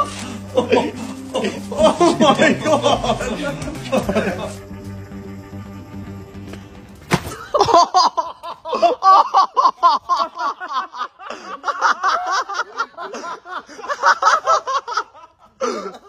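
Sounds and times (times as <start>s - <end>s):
people laughing hard: 0.0s - 4.7s, 7.3s - 16.0s
music: 0.0s - 8.3s.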